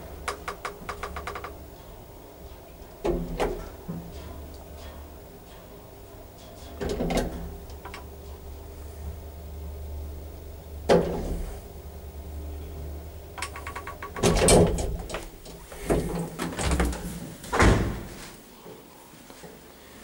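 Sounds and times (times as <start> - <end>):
lift motor humming: 0.0 - 18.1
lift doors knocking and thudding: 13.4 - 18.2.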